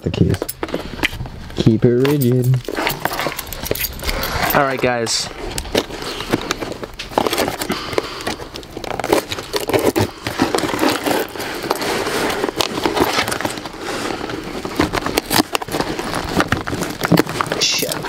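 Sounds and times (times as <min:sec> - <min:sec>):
key scraping through tape: 0:02.0 - 0:04.7.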